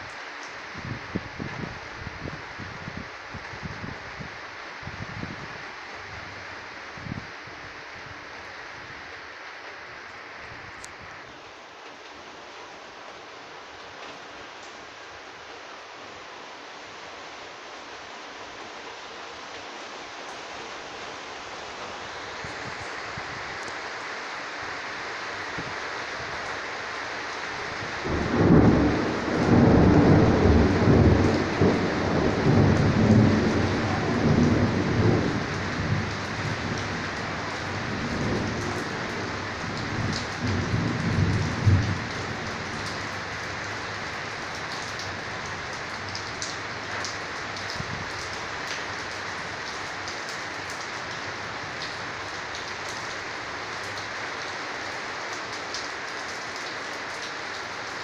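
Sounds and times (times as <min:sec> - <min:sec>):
steady rain hissing: 0:00.0 - 0:58.0
rolling thunder rumble: 0:28.0 - 0:44.4
raindrops ticking: 0:28.3 - 0:54.6.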